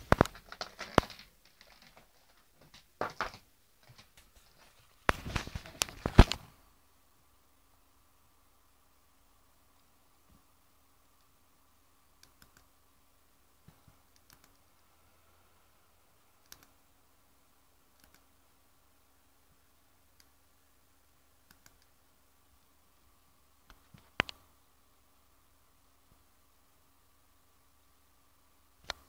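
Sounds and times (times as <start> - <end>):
faint steady hum: 0.0 - 29.0
computer mouse clicks: 12.2 - 12.7, 13.7 - 14.9, 16.4 - 16.8, 17.9 - 18.3, 21.4 - 22.0, 23.7 - 24.4.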